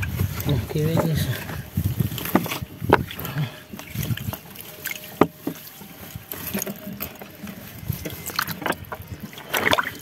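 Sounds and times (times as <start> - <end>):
gear knocking in canoe: 0.0 - 10.0.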